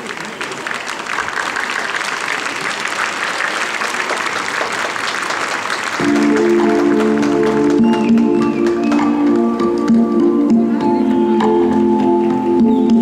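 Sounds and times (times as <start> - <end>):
audience applauding: 0.0 - 10.0
rumba music: 6.0 - 13.0.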